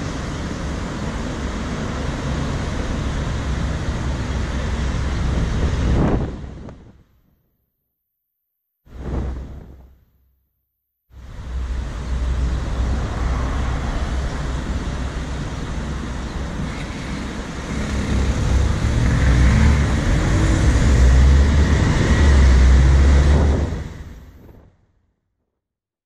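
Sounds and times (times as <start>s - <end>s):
traffic rumble: 0.0s - 7.3s, 8.9s - 10.2s, 11.1s - 24.8s
car engine revving up: 16.6s - 24.2s.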